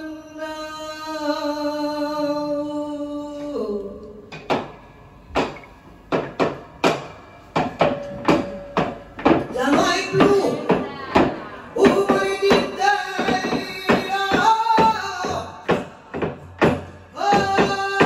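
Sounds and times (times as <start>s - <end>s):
sharp percussive strikes: 4.5s - 18.0s.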